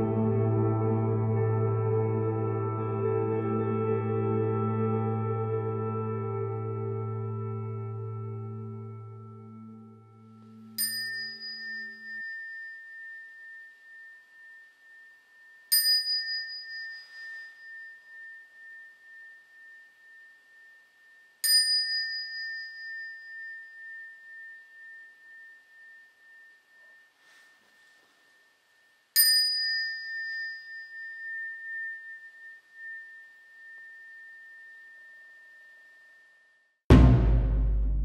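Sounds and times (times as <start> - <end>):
small bell ringing: 10.6 - 36.8.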